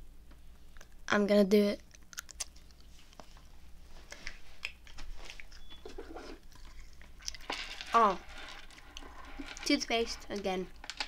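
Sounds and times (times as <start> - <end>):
chewing mouth clicks and smacks: 1.8 - 3.5, 4.1 - 5.8, 6.4 - 7.4.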